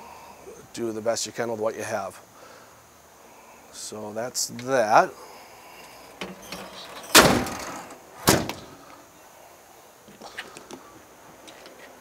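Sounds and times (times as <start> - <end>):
compartment door banging: 6.2 - 8.8
loud compartment door noise: 6.2 - 8.8.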